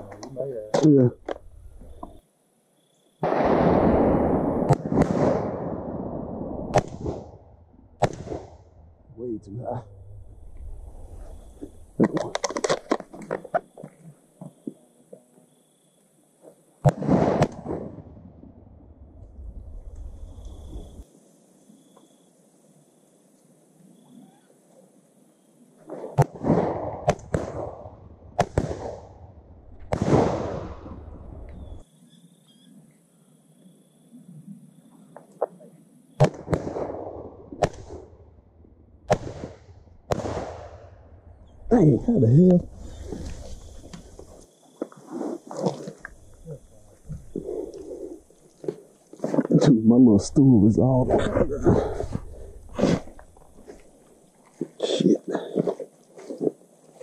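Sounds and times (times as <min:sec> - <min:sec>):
shotgun shots echoing: 0:03.2 - 0:06.1, 0:08.0 - 0:08.5, 0:16.8 - 0:18.0, 0:29.9 - 0:30.9, 0:36.2 - 0:38.1, 0:39.1 - 0:40.8.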